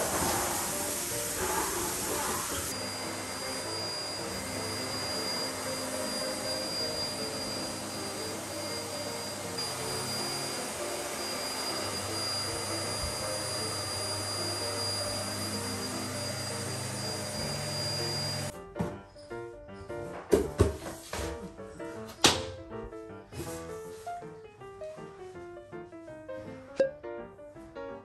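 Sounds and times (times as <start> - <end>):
vacuum cleaner motor whine: 0.0 - 18.6.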